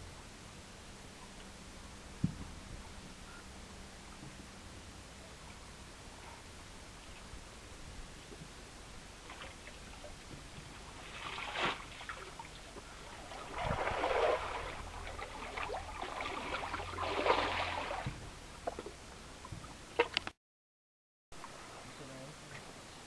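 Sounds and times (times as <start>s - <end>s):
faint low hum: 0.0s - 20.1s, 21.4s - 23.0s
river water splashing: 9.0s - 19.1s.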